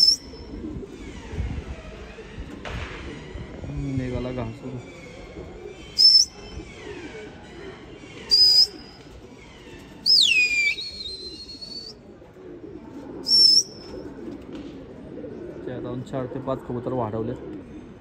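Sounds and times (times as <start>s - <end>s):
loud sharp whistles: 0.0s - 0.4s, 6.0s - 6.5s, 8.3s - 8.8s, 10.1s - 11.9s, 13.3s - 13.8s
pigeons cooing: 0.0s - 18.0s.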